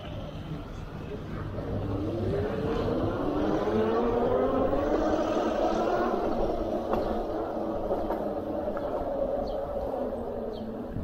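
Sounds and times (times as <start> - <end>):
road and wind rumble: 0.0 - 11.0
motor whining upward in pitch: 1.9 - 7.7.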